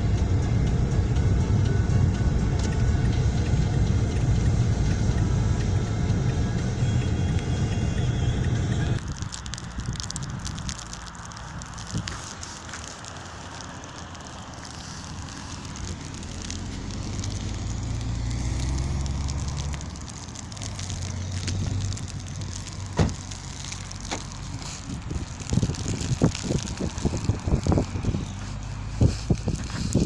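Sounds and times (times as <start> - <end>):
outdoor crackling noise: 0.0 - 30.0
wind rumbling on microphone: 0.0 - 30.0
sharp clicks: 9.0 - 30.0.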